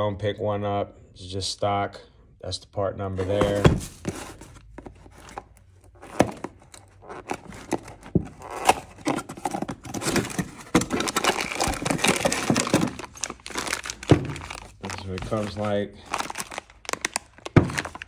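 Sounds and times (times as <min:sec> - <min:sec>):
plastic wrapping crinkling: 0:03.3 - 0:18.0.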